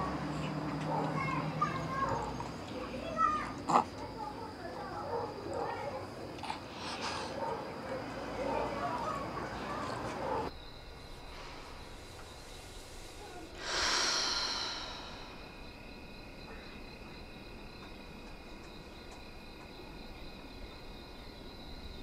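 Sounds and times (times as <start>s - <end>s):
crickets trilling: 0.0s - 22.0s
person exhaling deeply: 12.9s - 15.6s.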